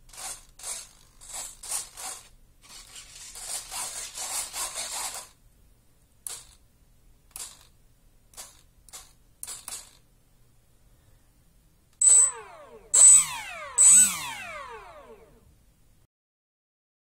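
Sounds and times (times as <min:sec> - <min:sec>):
rustling noise: 0:00.0 - 0:05.4
short mechanical whirrs: 0:12.0 - 0:15.4.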